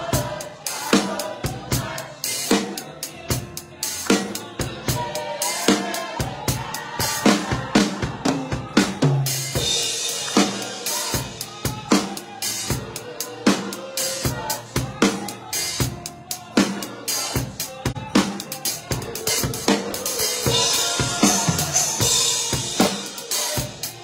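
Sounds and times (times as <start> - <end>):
bass drum: 6.2 - 11.9, 16.7 - 24.0
snare drum strokes: 7.1 - 12.7.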